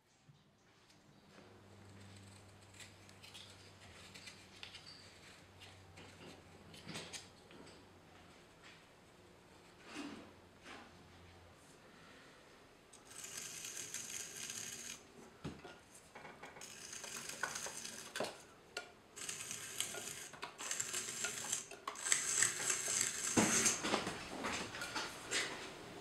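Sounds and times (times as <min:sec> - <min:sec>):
trimming tool scraping clay: 0:01.9 - 0:05.5, 0:13.0 - 0:15.1, 0:16.6 - 0:18.4, 0:19.2 - 0:23.8.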